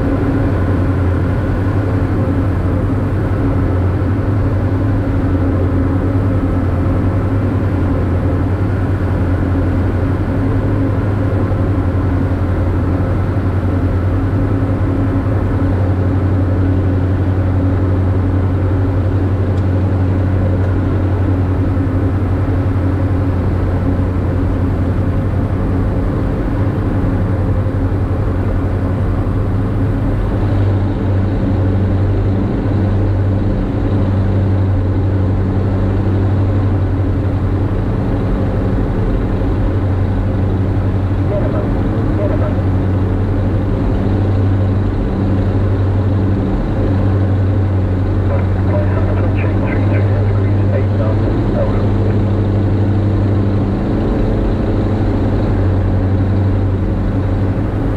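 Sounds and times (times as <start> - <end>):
aircraft engines and propellers droning: 0.0 - 57.9
low hum: 36.1 - 57.9.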